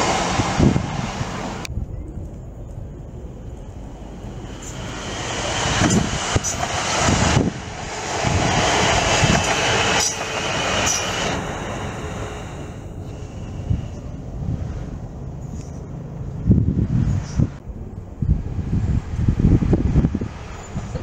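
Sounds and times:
electric train passing: 0.0s - 1.7s, 2.4s - 21.0s
high whine: 0.0s - 14.2s.

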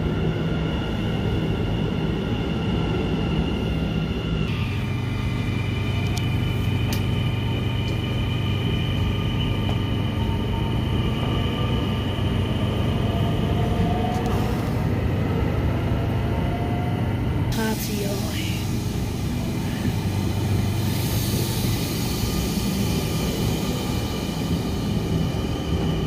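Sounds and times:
electric train rumbling: 0.0s - 26.0s
high whine of traction motors: 0.0s - 26.0s.

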